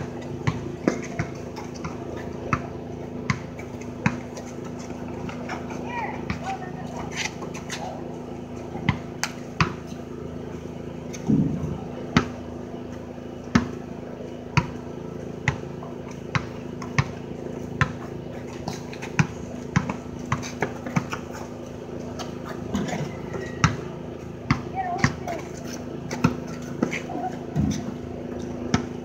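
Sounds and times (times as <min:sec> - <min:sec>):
basketball bouncing on pavement: 0:00.0 - 0:29.0
steady low hum: 0:00.0 - 0:29.0.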